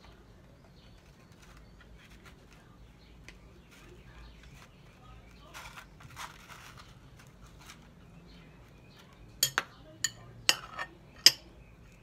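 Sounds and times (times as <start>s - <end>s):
metal spoon clinking on glass: 9.4s - 11.5s.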